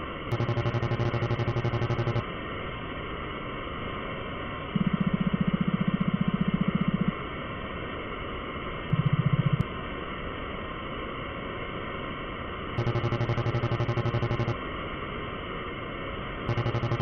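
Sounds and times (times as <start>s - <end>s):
low buzzing text beeps: 0.3s - 2.2s, 4.8s - 7.1s, 8.9s - 9.6s, 12.8s - 14.6s, 16.5s - 17.0s.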